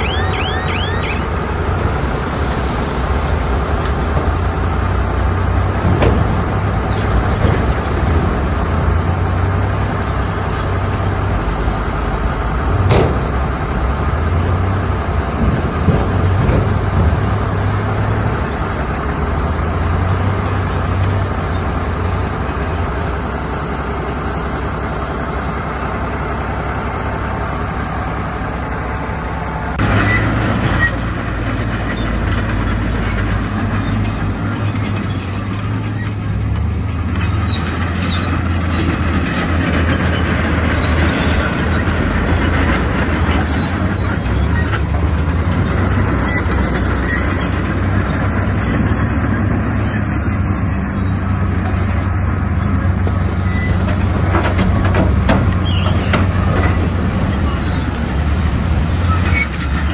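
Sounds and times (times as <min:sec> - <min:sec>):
diesel machinery engine drone: 0:00.0 - 0:59.9
sharp knocks and clanks: 0:05.6 - 0:08.5, 0:12.7 - 0:13.6, 0:15.2 - 0:18.1, 0:53.0 - 0:57.5.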